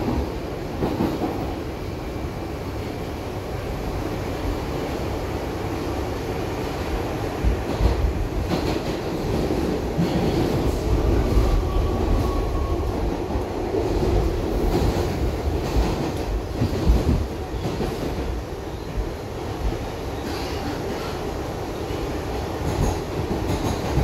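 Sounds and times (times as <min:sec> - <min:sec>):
subway wheels rumbling on rail: 0:00.0 - 0:24.0
rail joint clicks: 0:19.6 - 0:21.3, 0:22.5 - 0:24.0.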